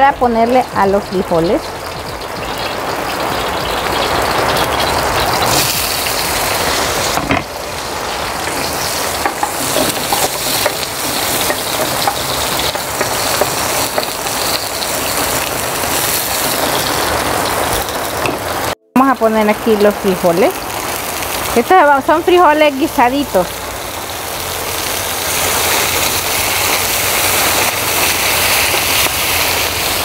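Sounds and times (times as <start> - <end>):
onion sizzling in hot oil: 0.0 - 30.0
spatula stirring in pan: 8.7 - 15.2.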